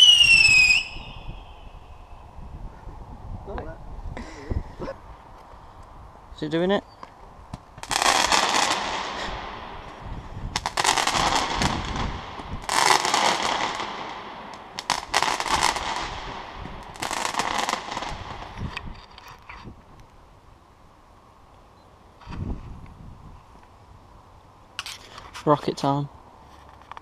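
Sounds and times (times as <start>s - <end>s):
fireworks crackling bangs: 7.5s - 19.2s.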